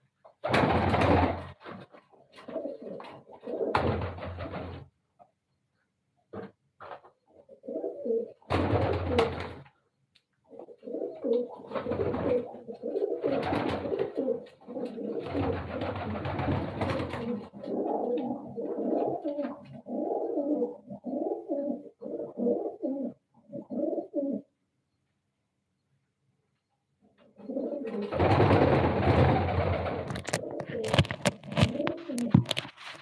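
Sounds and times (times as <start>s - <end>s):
pigeons cooing: 2.4s - 3.9s, 7.3s - 9.7s, 10.5s - 24.5s, 27.2s - 32.6s.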